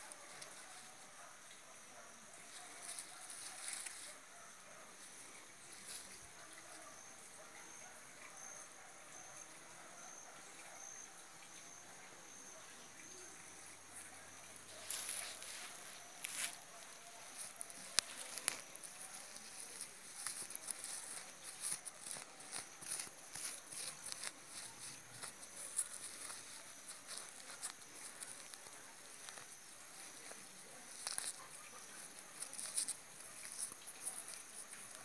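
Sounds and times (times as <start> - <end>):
hand scraping through dry soil: 14.6 - 35.0.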